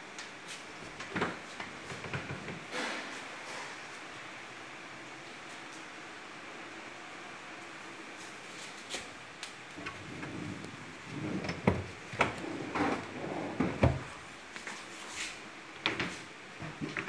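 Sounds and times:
wardrobe doors knocking and clattering: 0:11.1 - 0:14.1.

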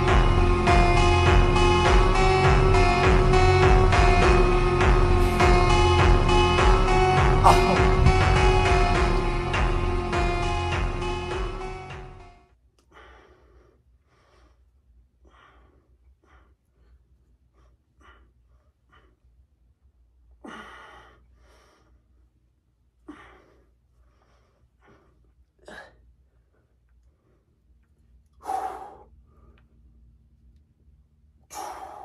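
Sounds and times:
man breathing hard: 0:12.8 - 0:19.3, 0:20.4 - 0:22.4, 0:23.0 - 0:27.7, 0:28.3 - 0:29.9, 0:31.4 - 0:32.0.

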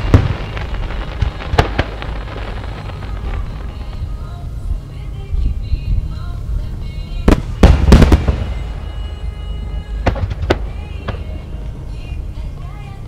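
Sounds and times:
fireworks bursting: 0:00.0 - 0:05.0, 0:07.0 - 0:12.1
low rumble: 0:00.0 - 0:13.0.

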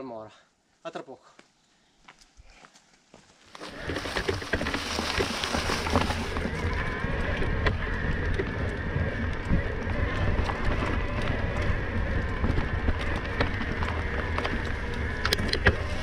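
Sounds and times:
bike clicks and rattles: 0:03.5 - 0:16.0
wind and trail vibration rumble: 0:03.6 - 0:16.0.

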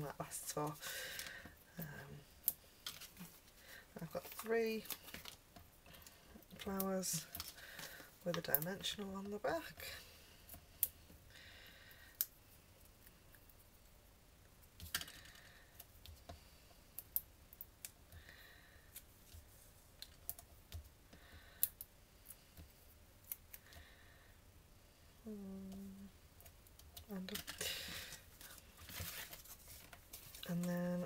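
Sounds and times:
paper rustling: 0:27.3 - 0:30.7.

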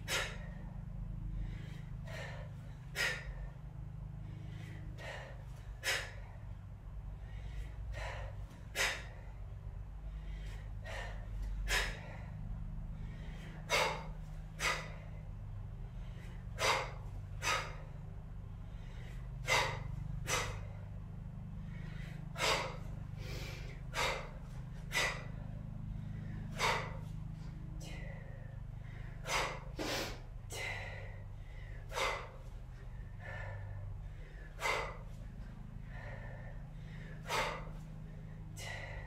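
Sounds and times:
steady low hum: 0:00.0 - 0:39.0
woman breathing forcefully: 0:00.0 - 0:39.0.

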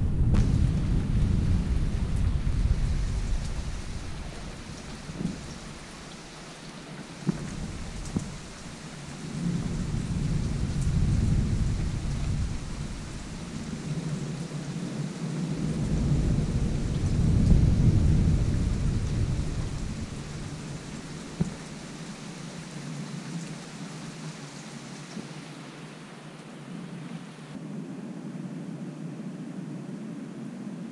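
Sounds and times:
thunder rumbling: 0:00.0 - 0:22.8
steady rain: 0:00.0 - 0:30.9.

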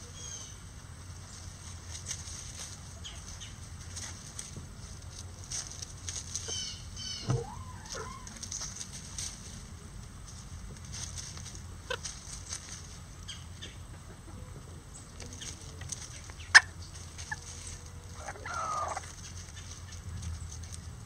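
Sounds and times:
chickens foraging in dry leaves: 0:00.0 - 0:21.0
chicken call: 0:06.5 - 0:08.4, 0:18.2 - 0:19.1.

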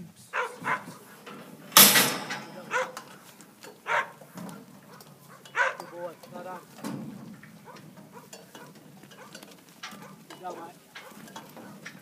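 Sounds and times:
dog barking: 0:00.3 - 0:01.0, 0:02.7 - 0:03.0, 0:03.8 - 0:04.2, 0:04.9 - 0:06.0, 0:07.6 - 0:09.4, 0:10.0 - 0:10.2, 0:11.0 - 0:11.8
loud bang and rattle: 0:01.5 - 0:02.7.

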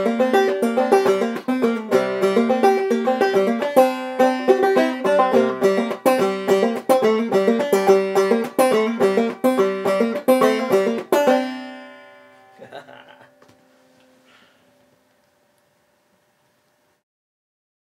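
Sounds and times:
banjo plucking: 0:00.0 - 0:13.0.

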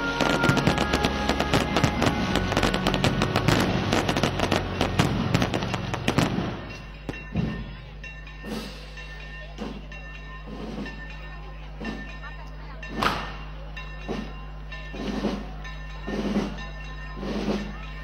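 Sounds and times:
fireworks crackling and banging: 0:00.0 - 0:11.2, 0:11.8 - 0:18.0.

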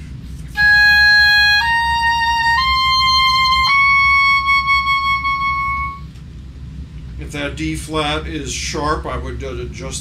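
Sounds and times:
oboe playing a rising scale: 0:00.5 - 0:06.2.

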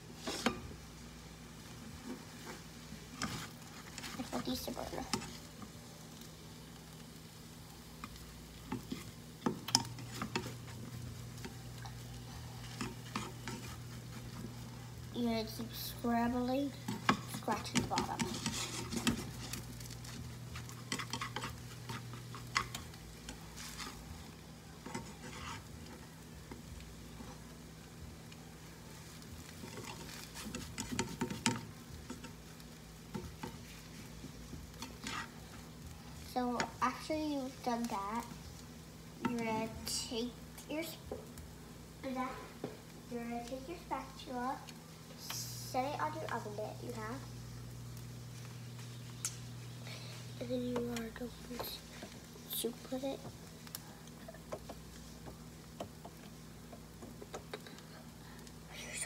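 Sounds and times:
faint sizzling: 0:00.0 - 0:59.0
spatula scraping frying pan: 0:00.1 - 0:00.8, 0:01.6 - 0:06.3, 0:08.0 - 0:27.5, 0:29.0 - 0:35.7.

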